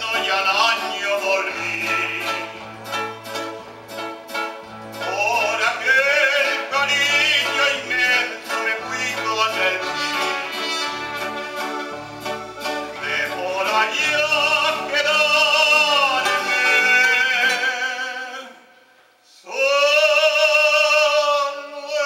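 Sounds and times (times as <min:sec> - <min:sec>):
male vocal trio singing: 0:00.0 - 0:02.6, 0:05.0 - 0:10.9, 0:12.9 - 0:18.6
keyboard accompaniment: 0:00.0 - 0:17.9.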